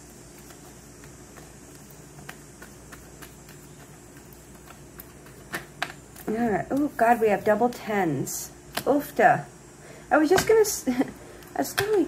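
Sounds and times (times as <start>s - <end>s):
cards shuffling clicks and taps: 0.0s - 7.3s
low room hum: 0.0s - 12.0s.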